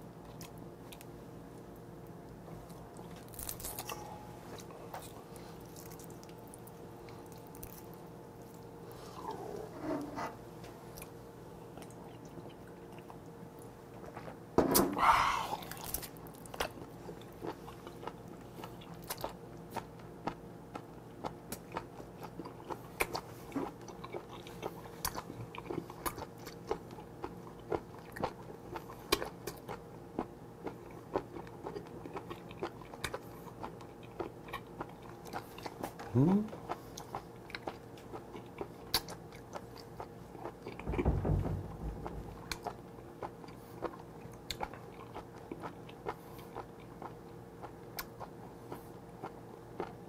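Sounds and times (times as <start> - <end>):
faint steady hum: 0.0 - 50.0
wet chewing clicks and smacks: 15.6 - 41.0, 42.5 - 50.0.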